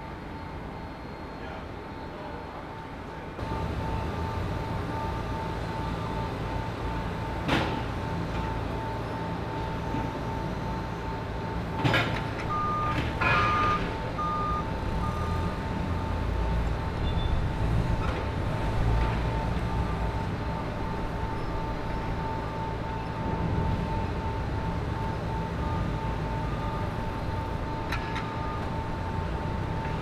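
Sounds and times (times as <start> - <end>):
forklift engines running: 0.0 - 30.0
reverse alarm beeping: 12.4 - 17.4, 19.3 - 29.2.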